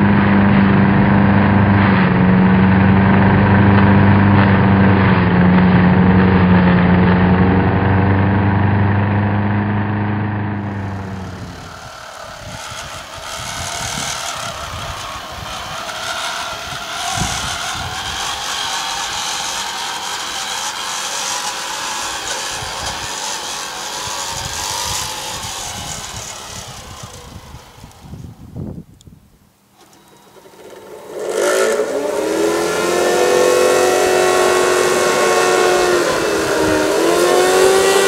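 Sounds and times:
model locomotive snowplough whirring: 10.5s - 28.7s, 29.7s - 38.0s.

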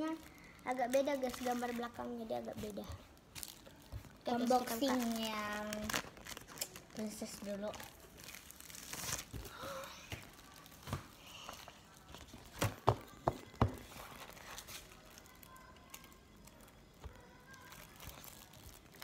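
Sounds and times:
plastic wrap crinkling: 0.0s - 19.0s.

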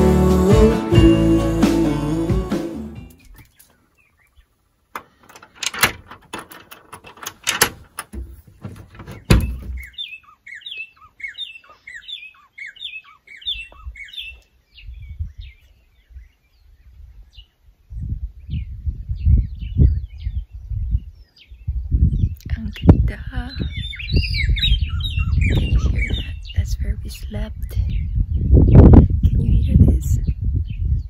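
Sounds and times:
bird chirping: 3.0s - 4.8s, 8.1s - 31.0s
wooden door unlatched and opened: 5.0s - 10.0s.

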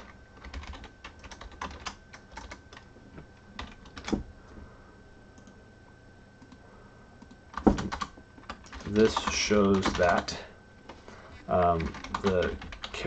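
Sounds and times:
typing on computer keyboard: 0.0s - 2.8s, 3.6s - 4.2s, 7.2s - 10.2s, 11.5s - 13.0s.

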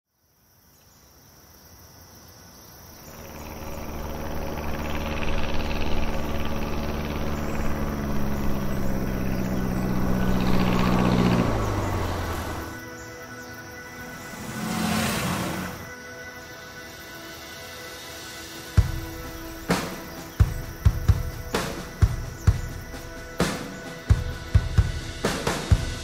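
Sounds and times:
propeller plane flying by: 3.0s - 16.3s.

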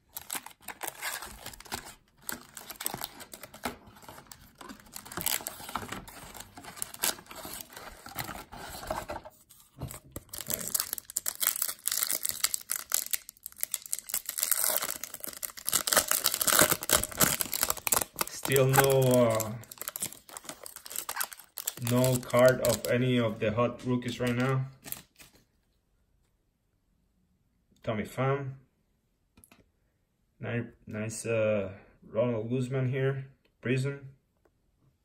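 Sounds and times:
foil wrapper crinkling and tearing: 0.0s - 9.0s, 10.1s - 23.1s, 24.1s - 25.4s.

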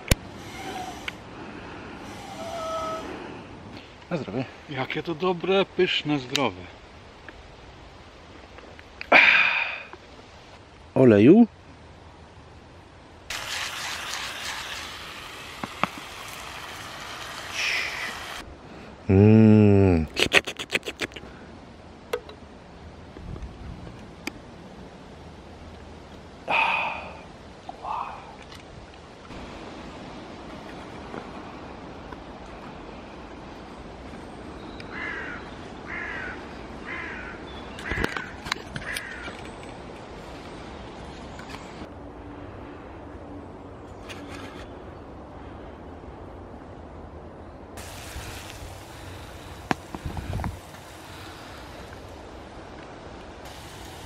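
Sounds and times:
bird downward-sliding call: 0.4s - 1.2s, 2.0s - 3.5s.

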